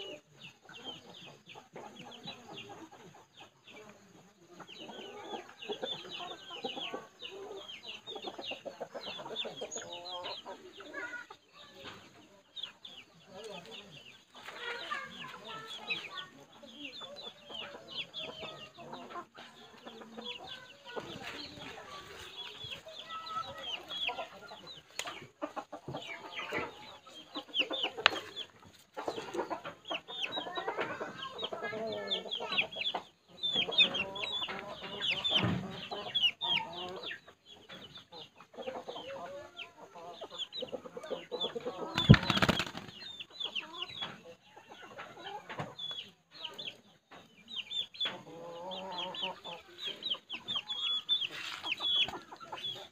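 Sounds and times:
chickens clucking: 0.0 - 52.9.

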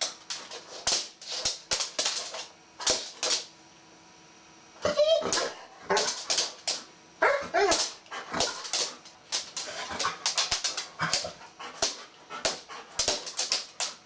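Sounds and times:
dog whining: 7.2 - 8.0.

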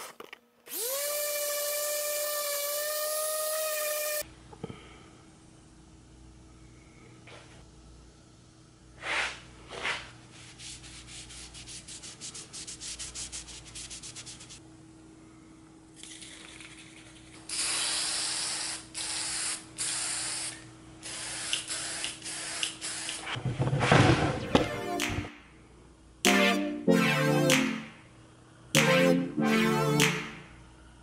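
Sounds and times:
spray can ball rattling: 16.0 - 23.4
spray can hissing: 17.2 - 23.4.

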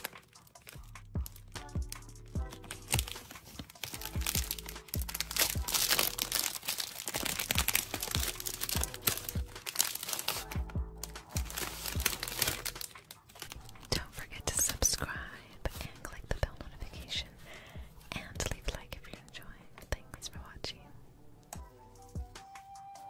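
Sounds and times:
plastic wrapper crinkling: 0.0 - 15.0
light background music: 0.0 - 23.0.

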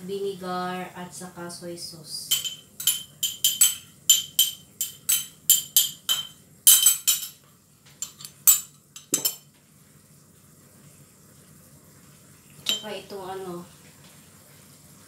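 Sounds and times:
metal spoon clinking on ramekin: 2.3 - 7.4, 8.0 - 9.4, 12.7 - 13.0.

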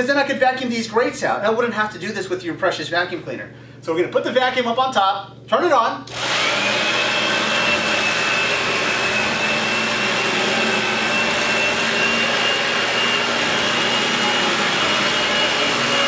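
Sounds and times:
vacuum cleaner running: 6.1 - 16.0.

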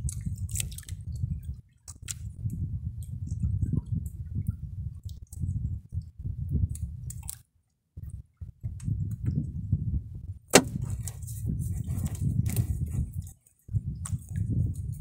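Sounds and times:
fish knocking on wooden boat: 10.6 - 11.0.

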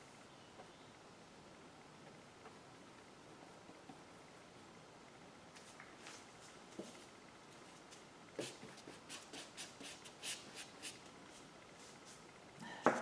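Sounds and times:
paintbrush strokes on canvas: 5.6 - 12.3.

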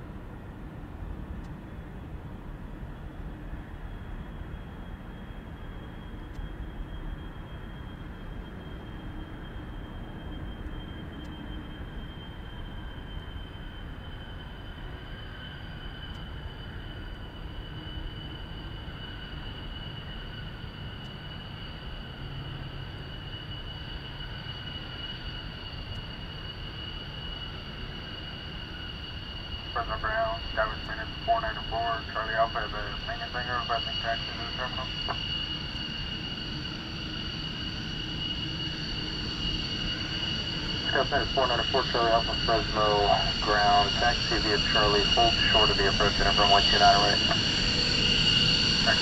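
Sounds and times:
distant jet engines whining: 0.0 - 49.0.

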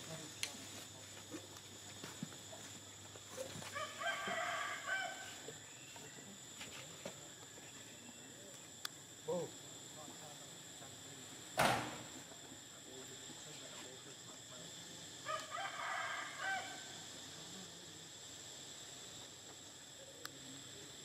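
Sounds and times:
rooster crowing: 3.6 - 5.6, 15.2 - 17.0.

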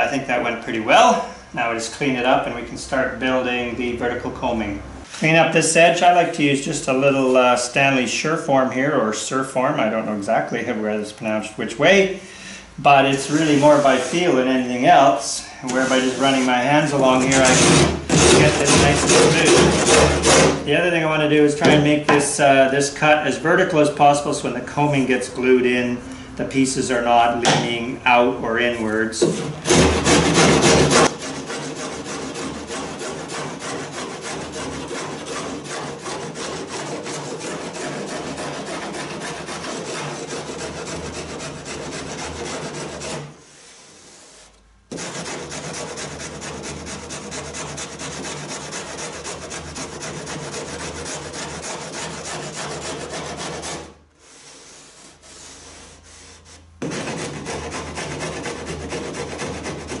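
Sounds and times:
rasp filing wood edge: 15.7 - 20.6, 29.2 - 43.4, 44.1 - 60.0.

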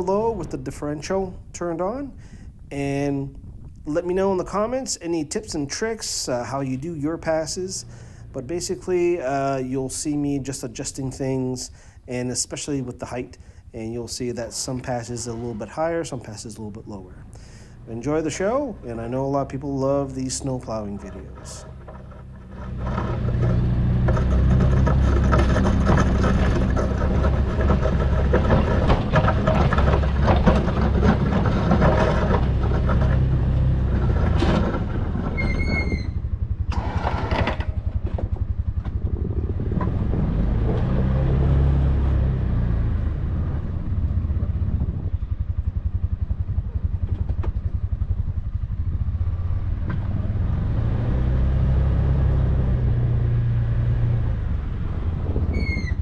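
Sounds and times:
engine running: 0.0 - 56.0
plow blade scraping snow: 5.7 - 38.5, 39.1 - 44.8, 49.3 - 56.0.

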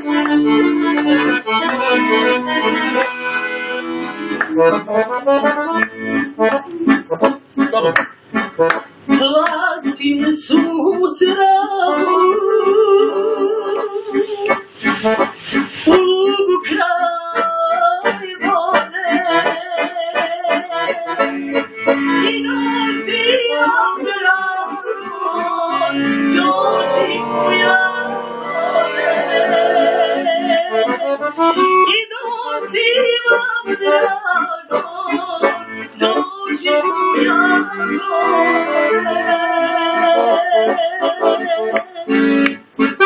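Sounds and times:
piano accordion: 0.0 - 43.0
woman singing folk song: 9.1 - 14.7, 15.8 - 21.3, 22.0 - 42.4.

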